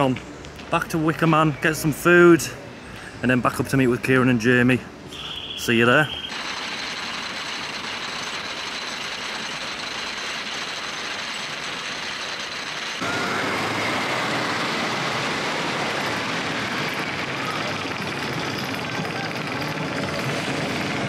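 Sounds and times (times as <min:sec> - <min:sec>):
roller coaster on wooden track: 0:06.3 - 0:21.0.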